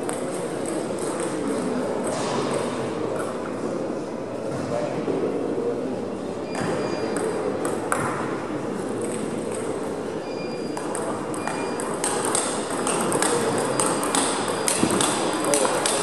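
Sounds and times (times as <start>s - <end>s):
table tennis ball clicks: 10.8s - 16.0s.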